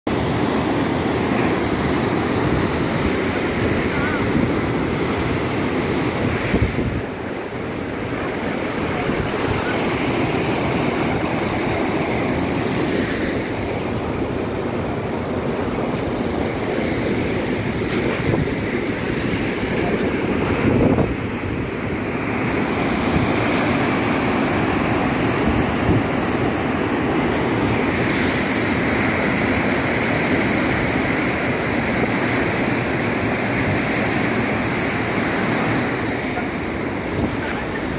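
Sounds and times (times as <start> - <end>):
floodwater rushing down spillway: 0.1 - 37.9
wind buffeting microphone: 1.6 - 29.1.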